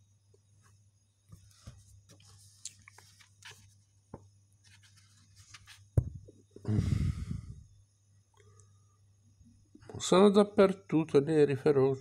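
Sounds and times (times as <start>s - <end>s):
comic book handling scratches: 4.6s - 6.0s.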